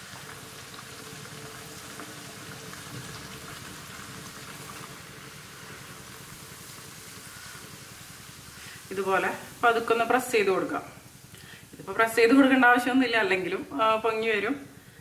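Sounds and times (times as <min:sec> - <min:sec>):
bread deep-frying in hot oil: 0:00.0 - 0:13.3.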